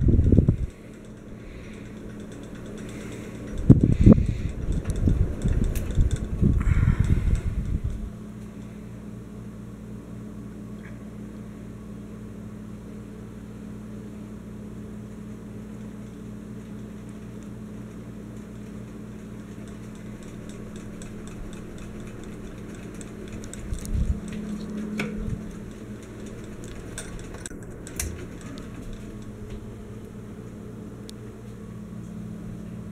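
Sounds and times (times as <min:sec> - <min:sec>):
fan click: 0:00.0 - 0:09.9, 0:14.8 - 0:32.9
ceiling fan motor humming: 0:00.0 - 0:32.9.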